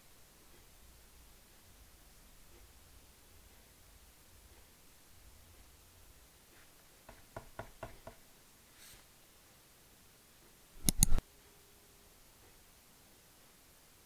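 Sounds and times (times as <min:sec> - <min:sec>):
soft brush on cardboard: 0:06.4 - 0:07.2, 0:08.6 - 0:09.2.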